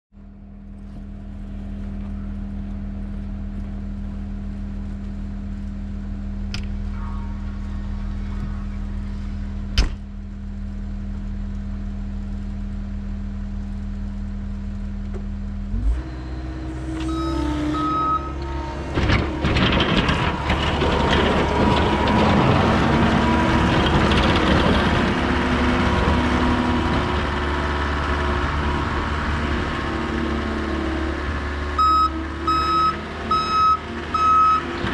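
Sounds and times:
diesel engine idling: 0:00.2 - 0:12.3, 0:13.9 - 0:34.9
clatter of tracks and plow: 0:16.1 - 0:34.9.

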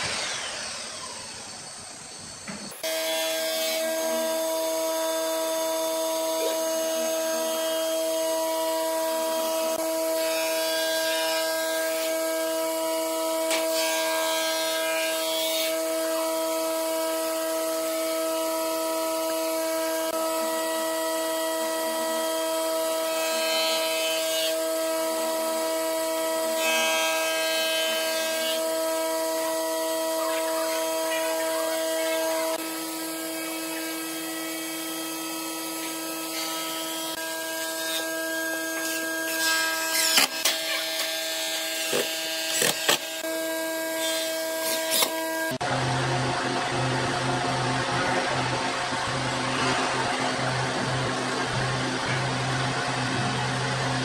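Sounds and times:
steady machine hum: 0:45.2 - 0:54.0.

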